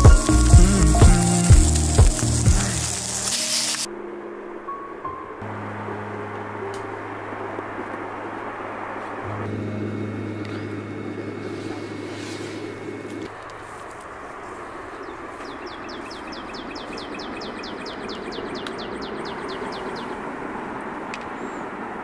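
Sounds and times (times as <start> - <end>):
camp stove flames rushing: 0.0 - 3.9, 11.4 - 15.4
rapid trill of high chirps: 0.0 - 3.9
low hum: 0.0 - 16.2.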